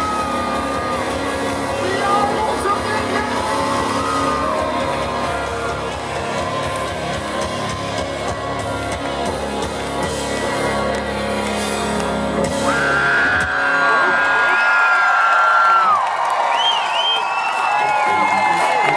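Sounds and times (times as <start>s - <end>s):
live country rock band: 0.0s - 14.1s.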